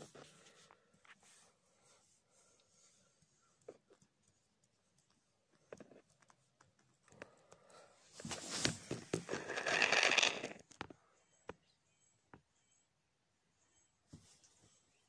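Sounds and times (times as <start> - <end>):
faint clicks and taps: 2.5 - 7.9.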